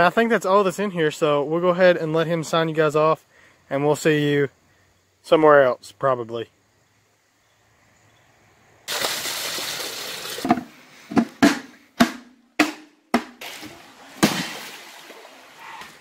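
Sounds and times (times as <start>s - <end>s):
hollow knocks on plastic container: 10.5s - 13.4s.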